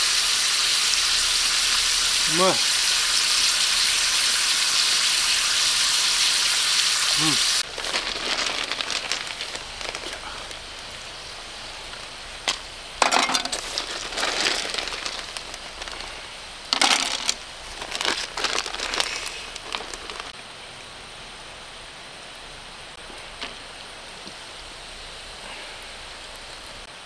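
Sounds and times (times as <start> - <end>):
meat sizzling in a skillet: 0.0 - 20.3
plastic bag crinkling: 7.6 - 10.6, 12.5 - 20.3.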